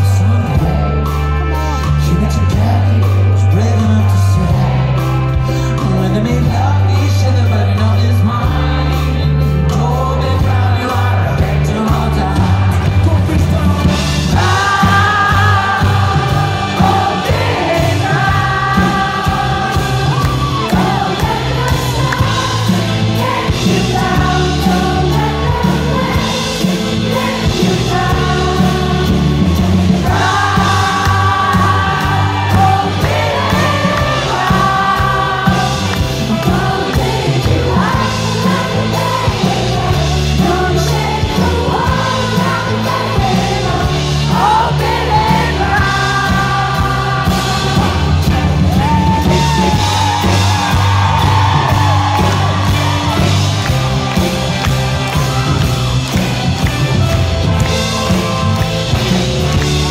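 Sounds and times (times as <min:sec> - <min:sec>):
man singing into a microphone: 0:00.0 - 0:04.9, 0:05.7 - 0:15.6
live pop band music: 0:00.0 - 0:59.9.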